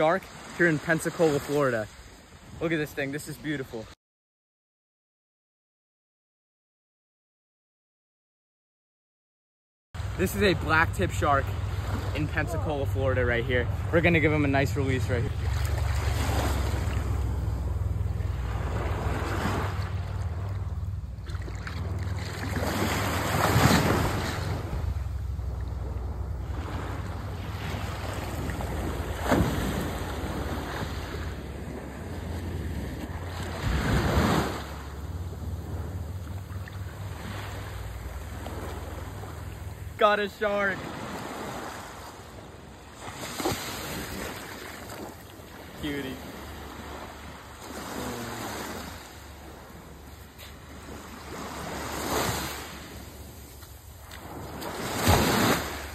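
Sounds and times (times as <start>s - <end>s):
small waves lapping on shore: 0.0s - 4.0s, 10.0s - 55.9s
wind rumbling on microphone: 13.6s - 40.0s.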